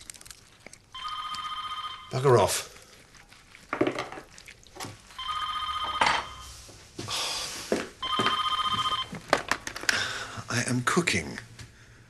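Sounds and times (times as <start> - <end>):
telephone trilling ring: 1.0 - 2.3, 5.2 - 6.5, 8.0 - 9.2.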